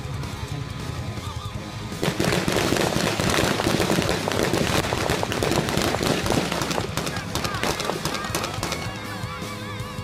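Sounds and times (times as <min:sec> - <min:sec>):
rapid gunfire: 0:02.0 - 0:09.1.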